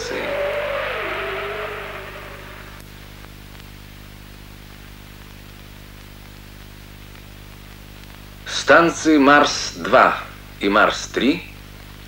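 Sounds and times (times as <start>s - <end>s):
wavering gliding tone: 0.0s - 2.8s
film soundtrack hiss and hum: 0.0s - 12.0s.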